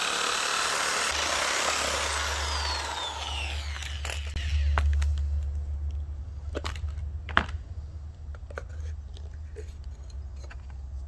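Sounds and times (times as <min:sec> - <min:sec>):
steady low hum: 0:02.1 - 0:11.0
metal housing clicks and knocks: 0:08.3 - 0:11.0.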